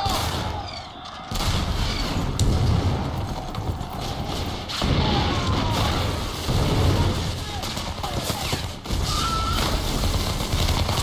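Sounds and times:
explosion blast and rumble: 0.0s - 8.2s.

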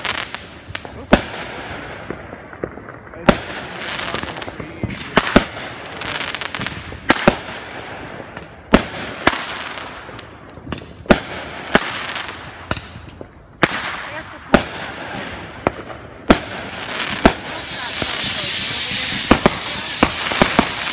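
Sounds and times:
fireworks bangs: 0.0s - 20.9s
fireworks hissing: 16.5s - 20.9s.

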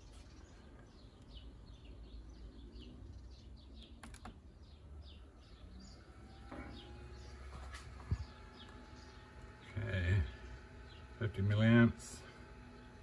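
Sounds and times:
bird chirping: 0.0s - 13.0s
laptop keys clicking: 3.9s - 4.4s.

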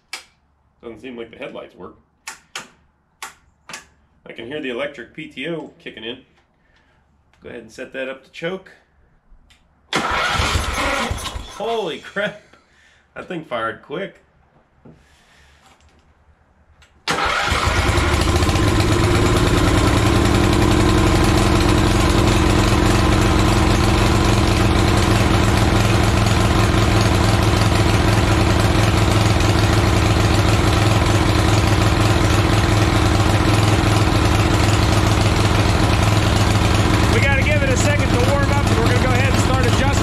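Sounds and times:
small gasoline engine starting: 9.9s - 12.2s, 17.1s - 40.0s.

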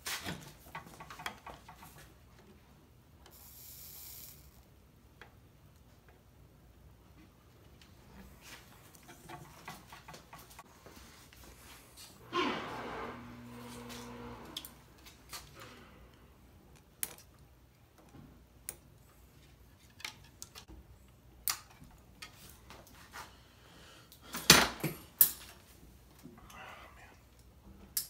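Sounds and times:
low hum: 12.2s - 15.0s.

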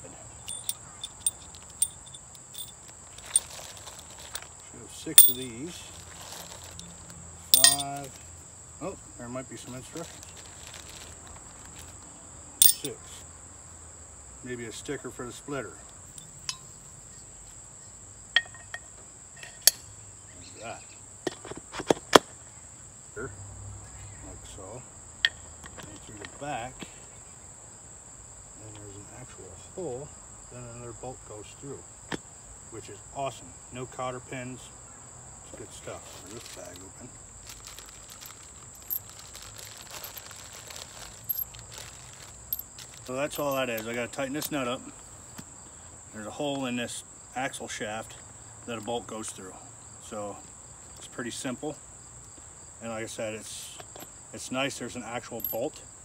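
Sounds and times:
crickets chirping: 0.0s - 56.0s
insect chorus: 0.0s - 56.0s
metal parts clinking and knocking: 0.4s - 4.5s, 5.2s - 5.6s, 6.2s - 6.8s, 7.5s - 8.2s, 12.6s - 13.0s, 37.5s - 44.6s, 55.4s - 55.6s
plastic bag crinkling: 3.2s - 4.4s, 5.9s - 6.8s, 10.0s - 11.9s, 37.4s - 43.4s.

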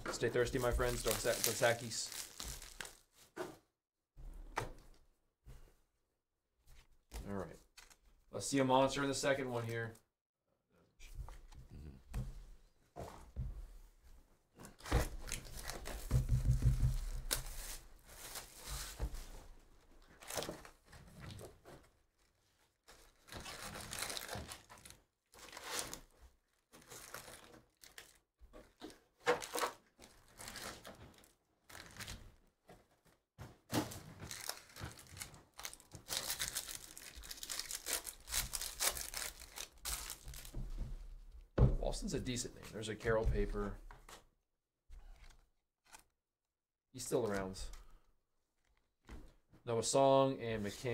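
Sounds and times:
foil wrappers rustling: 0.4s - 3.1s, 22.8s - 26.1s, 26.7s - 28.2s, 33.9s - 40.6s
foil pack tearing: 0.8s - 3.0s, 34.2s - 40.5s.

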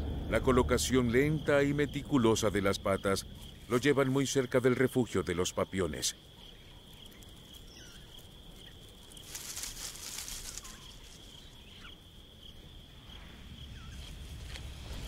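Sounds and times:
insect trill: 0.0s - 15.0s.

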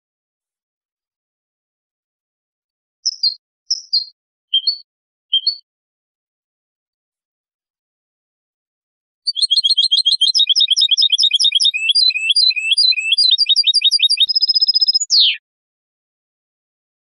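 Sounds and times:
goldfinch singing: 3.0s - 5.6s, 9.3s - 15.4s.

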